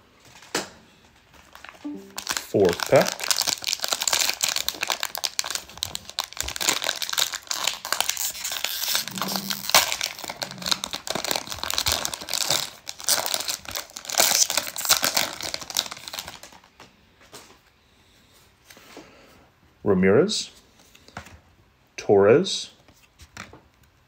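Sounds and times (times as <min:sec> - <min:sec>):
foil wrapper tearing and crinkling: 0:01.3 - 0:16.8.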